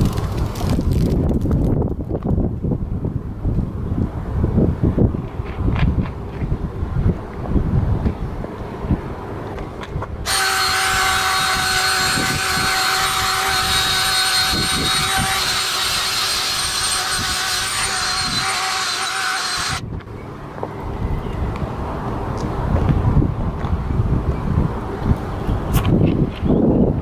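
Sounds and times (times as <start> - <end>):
power drill motor whine: 10.3 - 19.8
wire brush scraping asphalt: 10.3 - 19.8.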